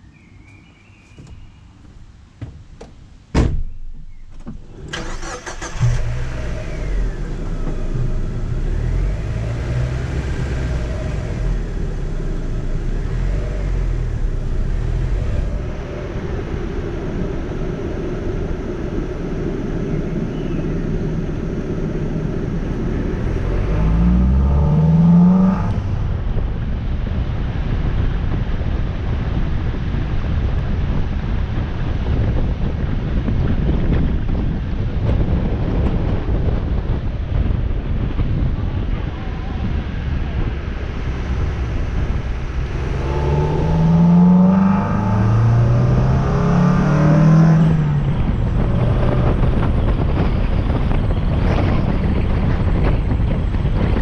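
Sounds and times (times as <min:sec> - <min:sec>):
car engine starting and revving: 0:04.4 - 0:54.0.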